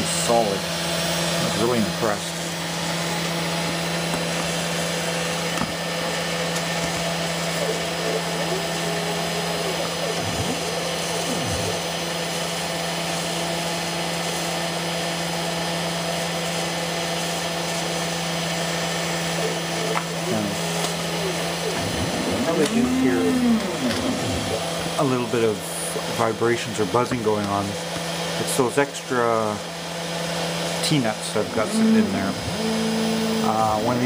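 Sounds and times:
cnc spindle motor humming: 0.0s - 34.0s
vibration buzz: 1.4s - 12.8s, 18.9s - 25.5s, 31.3s - 34.0s
stepper motor tones sliding in pitch: 20.2s - 24.9s, 31.4s - 34.0s.

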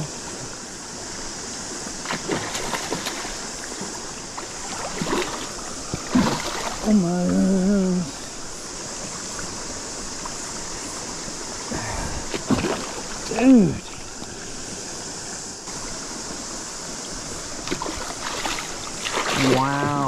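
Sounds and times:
river stream rushing: 0.0s - 20.0s
fish splashing at surface: 2.0s - 3.4s, 4.5s - 6.9s, 12.3s - 13.2s, 17.6s - 20.0s
man's voice held sound: 13.3s - 14.0s.

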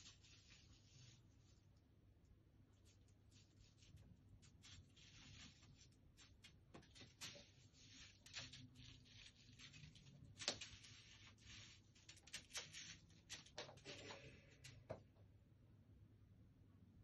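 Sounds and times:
kitten claws scratching wooden floor: 2.8s - 14.9s.

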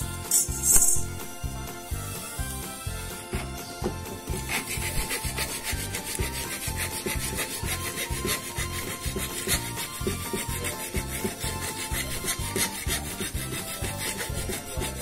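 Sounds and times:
background music with steady beat: 0.0s - 15.0s
file rasping on metal pipe: 4.1s - 15.0s.

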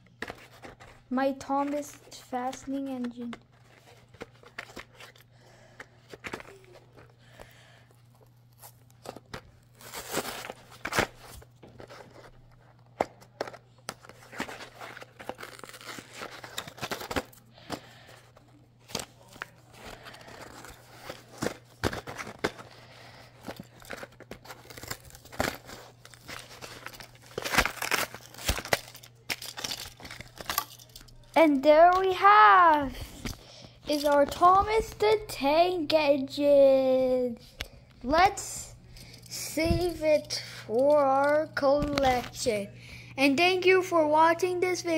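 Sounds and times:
cardboard being torn and scraped: 9.7s - 12.2s, 14.2s - 17.3s, 23.8s - 30.5s.

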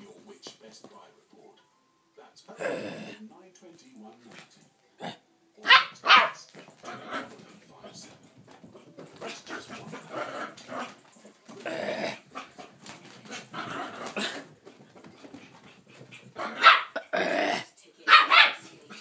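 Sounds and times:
puppy growling: 2.5s - 3.2s, 9.2s - 14.6s, 15.2s - 17.8s
puppy barking: 5.6s - 7.3s, 16.3s - 17.1s, 18.1s - 19.0s.

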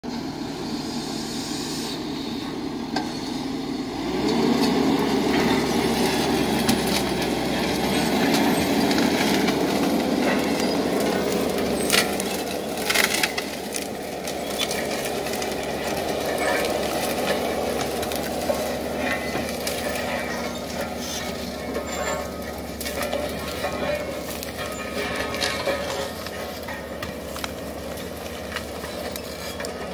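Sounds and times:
diesel engine running under load: 0.0s - 29.9s
wood snapping: 6.0s - 29.9s.

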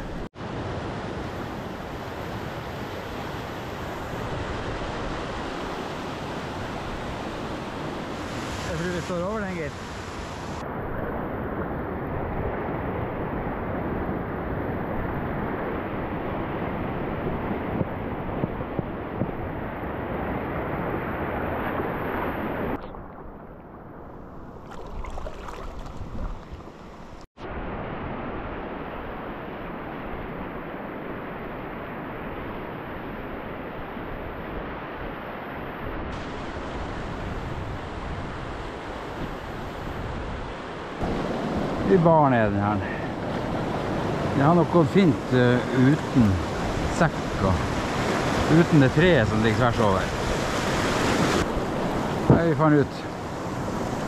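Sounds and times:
river rapid rushing water: 0.4s - 10.6s, 36.1s - 54.0s.

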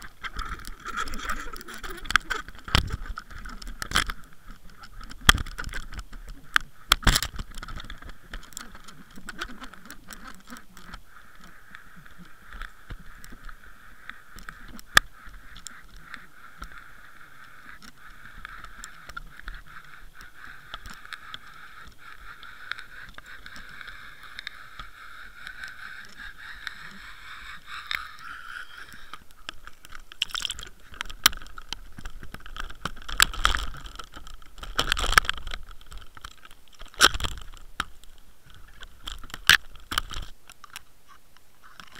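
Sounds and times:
water splashing: 0.0s - 5.8s, 20.8s - 37.5s
underwater whine: 21.1s - 29.8s.

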